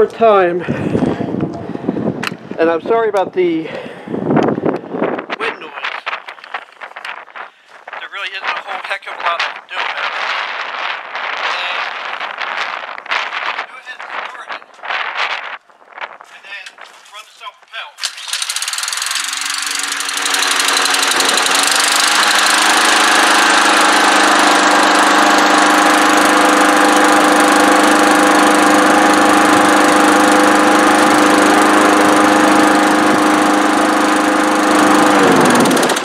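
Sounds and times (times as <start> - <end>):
lawn mower engine running: 18.0 - 36.0.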